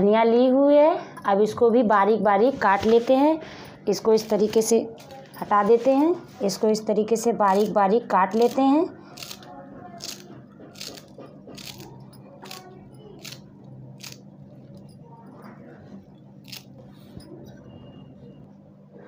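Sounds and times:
knife chopping herbs on a plate: 0:10.0 - 0:12.6.

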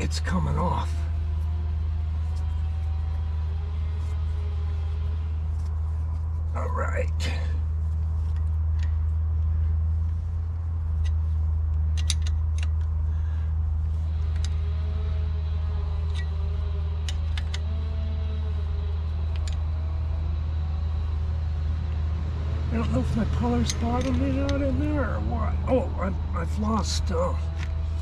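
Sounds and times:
steady low hum: 0:00.0 - 0:28.0
wrench clicking on metal: 0:11.8 - 0:12.9, 0:17.0 - 0:17.7.

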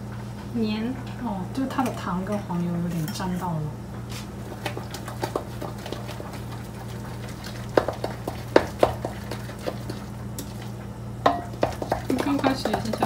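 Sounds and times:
utensil stirring in ceramic bowl: 0:04.1 - 0:13.0.

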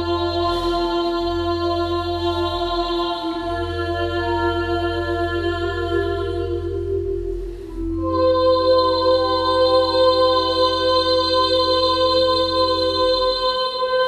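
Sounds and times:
woman singing long notes: 0:00.0 - 0:14.0.

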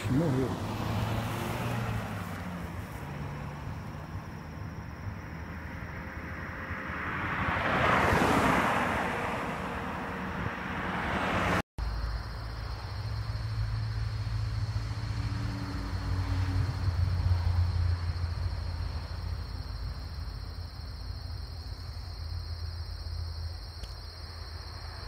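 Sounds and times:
car passing: 0:00.0 - 0:23.5, 0:24.1 - 0:25.0.

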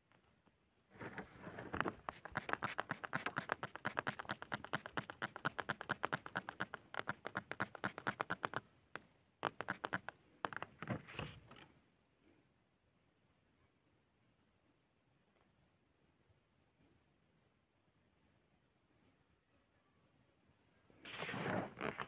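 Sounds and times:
fingers scraping wet dirt: 0:01.1 - 0:08.6, 0:09.4 - 0:11.6, 0:21.1 - 0:22.0.

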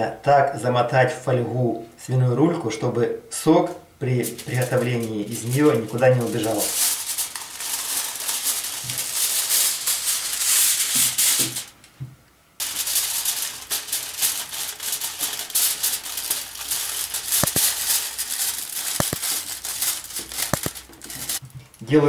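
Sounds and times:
aluminium foil crinkling: 0:04.1 - 0:11.8, 0:12.6 - 0:21.8.

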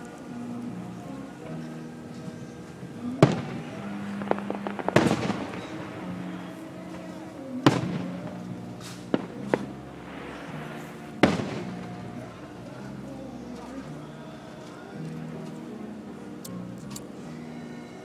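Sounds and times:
fireworks crackles: 0:00.0 - 0:17.2
fireworks bangs: 0:02.2 - 0:14.0.

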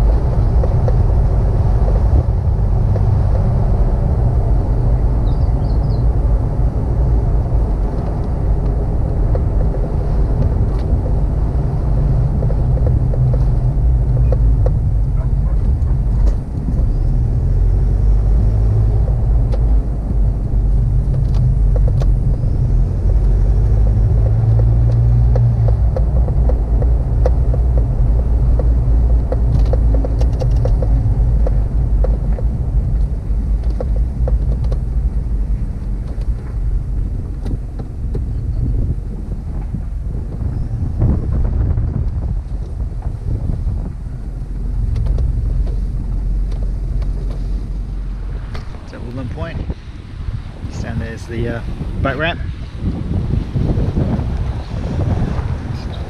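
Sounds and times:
engine and road rumble: 0:00.0 - 0:56.0
small clicks and rattles: 0:07.9 - 0:17.0, 0:20.6 - 0:35.0.

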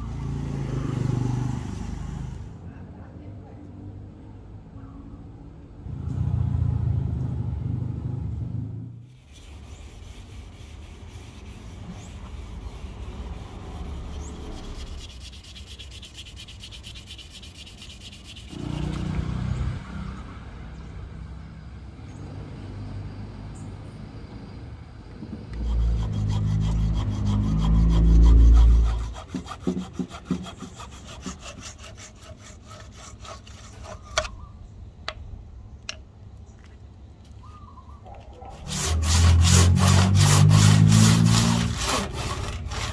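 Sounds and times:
hand tool scraping wood: 0:09.1 - 0:19.2, 0:25.5 - 0:34.5, 0:38.4 - 0:42.9.

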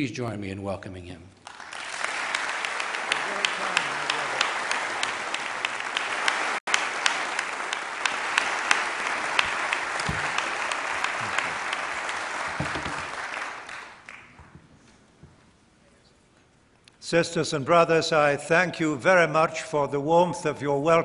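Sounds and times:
large audience applauding: 0:01.4 - 0:14.5
single sharp claps: 0:02.3 - 0:14.5.

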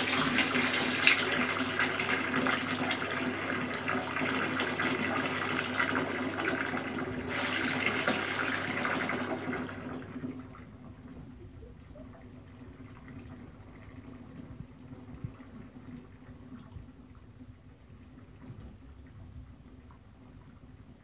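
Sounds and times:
tap water splashing into basin: 0:00.0 - 0:10.6.

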